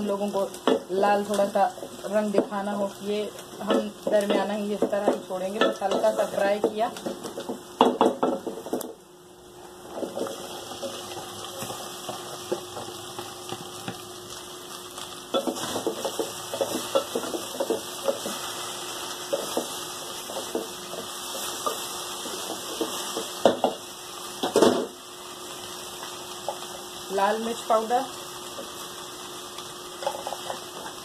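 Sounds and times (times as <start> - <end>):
onions sizzling: 0.0 - 31.0
spoon knocking on pot: 3.7 - 9.0, 22.4 - 23.8.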